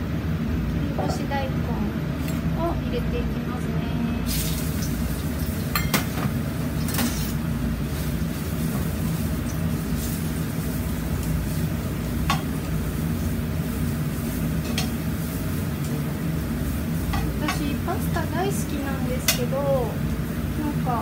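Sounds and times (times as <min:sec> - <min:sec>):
steady low hum: 0:00.0 - 0:21.0
food stir-frying in pan: 0:04.2 - 0:21.0
tongs clicking against pan: 0:19.2 - 0:19.5.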